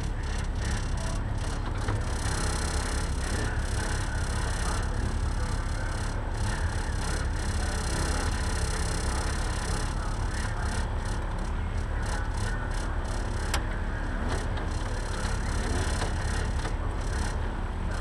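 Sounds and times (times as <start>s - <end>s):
race car engines running: 0.0s - 18.0s.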